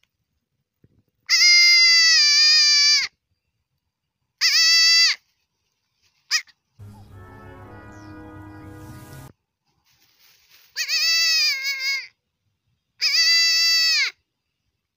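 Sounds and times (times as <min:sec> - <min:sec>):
goat kid bleating: 0:01.2 - 0:03.2, 0:04.4 - 0:05.3, 0:10.7 - 0:12.2, 0:13.0 - 0:14.2.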